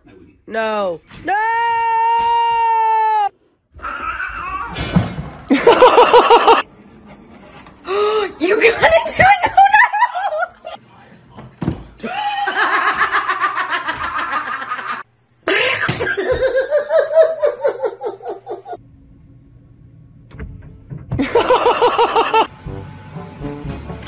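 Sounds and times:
people laughing: 5.5s - 6.6s, 8.8s - 10.8s, 12.0s - 18.8s, 21.2s - 22.5s
low steady hum: 16.7s - 24.0s.

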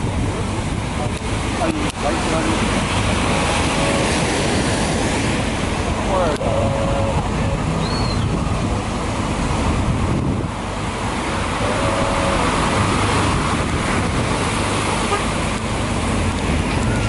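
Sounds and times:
ocean surf breaking: 0.0s - 17.0s
wind rumbling on microphone: 0.0s - 17.0s.

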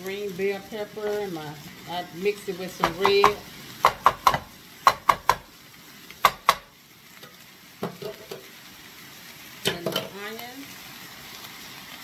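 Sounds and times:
vegetables and sausage sizzling: 0.0s - 12.0s
spoon knocking against pan: 2.8s - 5.5s, 6.2s - 6.7s, 7.8s - 8.4s.

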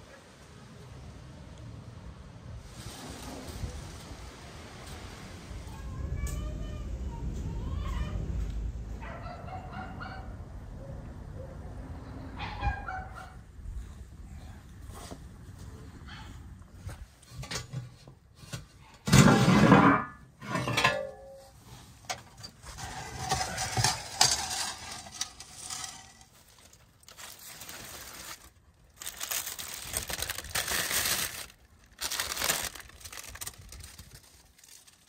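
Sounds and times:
metal pan scraping: 17.4s - 26.5s
metal oven door scraping open: 19.0s - 21.2s, 22.6s - 26.3s
aluminium foil crinkling: 22.6s - 35.0s.

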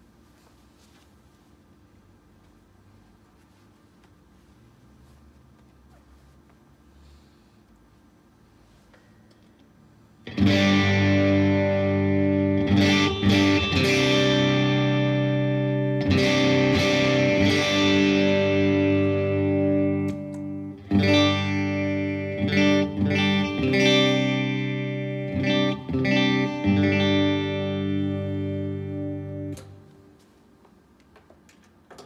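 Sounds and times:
overdriven electric guitar chords: 10.2s - 30.2s.

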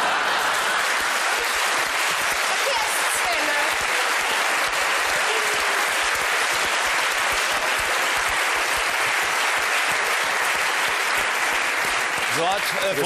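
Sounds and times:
audience applauding: 0.0s - 13.0s.

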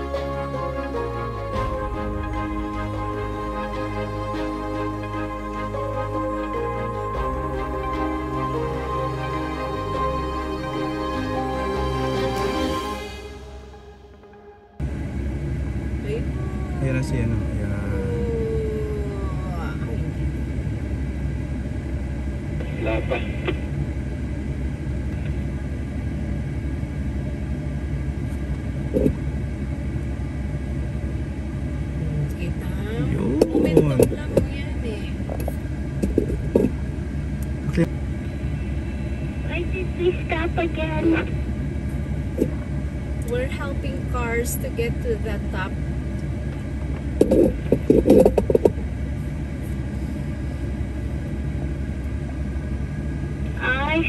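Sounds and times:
car cabin road and engine rumble: 13.2s - 54.0s.

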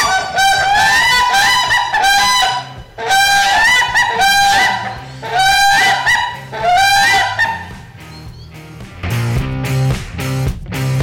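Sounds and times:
duck quacking: 0.0s - 8.4s.

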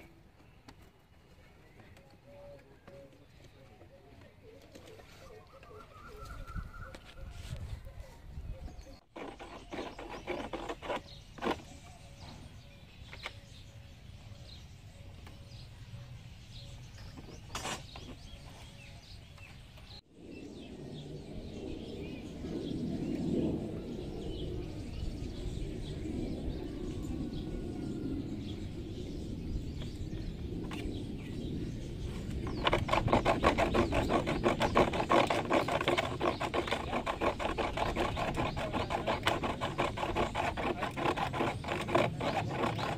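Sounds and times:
fast rasping clicking in plastic: 9.2s - 11.7s, 32.4s - 42.9s.

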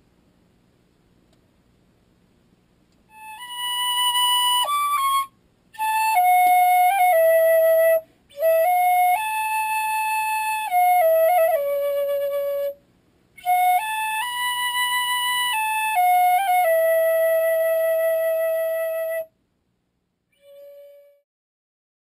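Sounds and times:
tin whistle melody: 3.1s - 12.8s, 13.4s - 19.3s, 20.4s - 21.2s.

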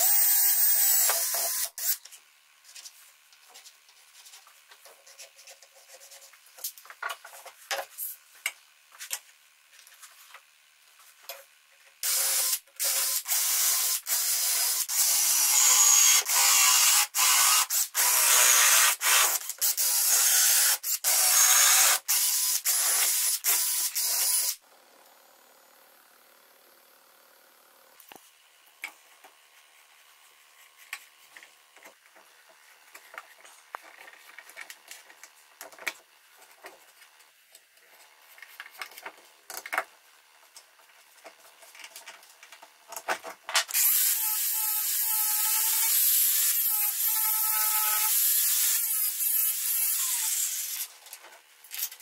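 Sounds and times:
cordless drill boring into plywood: 0.0s - 2.0s, 12.0s - 24.6s, 43.8s - 50.8s.

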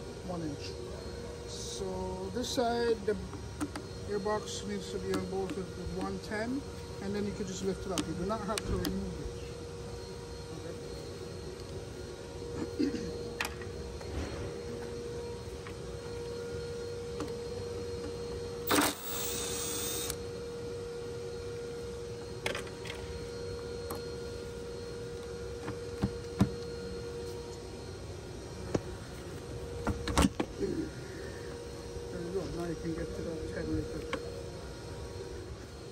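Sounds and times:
steady hum: 0.0s - 35.9s
loud rasping burst: 18.7s - 20.2s.

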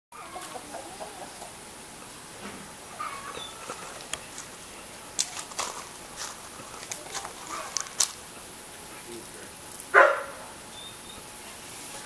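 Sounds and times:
hen clucking: 0.1s - 1.8s, 2.8s - 4.4s.

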